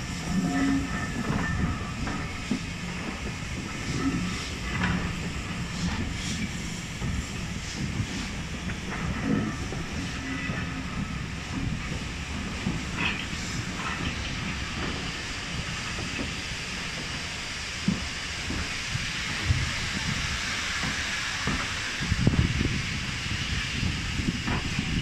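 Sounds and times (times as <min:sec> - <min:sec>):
steam hiss: 0:00.0 - 0:25.0
train wheels rumbling: 0:00.0 - 0:25.0.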